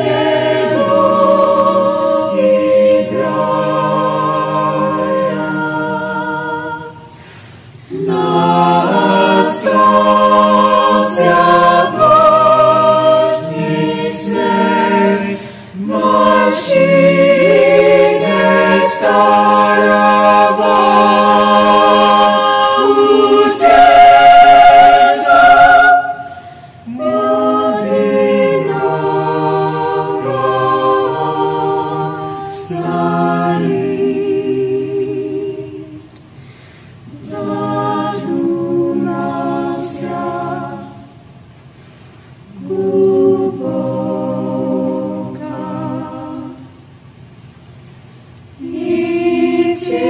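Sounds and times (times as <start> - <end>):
choir singing: 0.0 - 36.2, 37.0 - 41.6, 42.4 - 47.2, 48.5 - 50.0.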